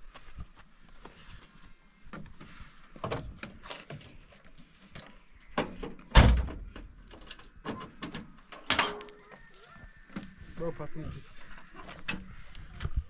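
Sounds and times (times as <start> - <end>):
truck door slamming: 6.1 - 6.8.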